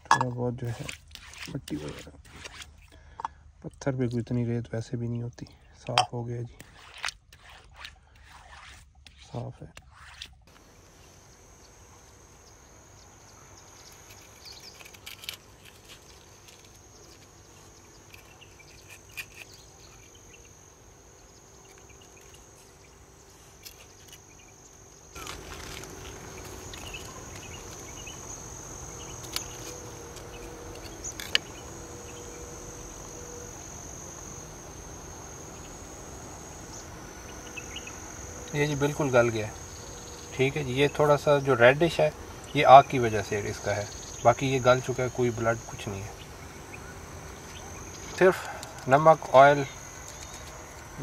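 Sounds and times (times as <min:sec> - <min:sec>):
insects chirring: 0:00.0 - 0:51.0
background hiss: 0:10.5 - 0:51.0.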